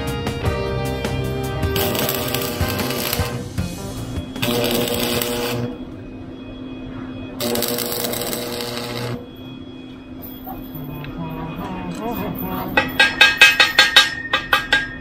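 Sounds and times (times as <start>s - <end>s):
welding arc crackling and hissing: 1.8s - 5.8s, 7.4s - 9.2s.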